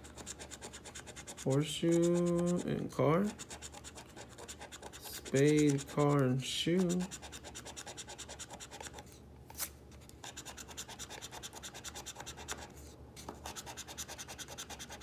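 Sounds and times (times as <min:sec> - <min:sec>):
scraping scratch-off ticket: 0:00.0 - 0:09.0.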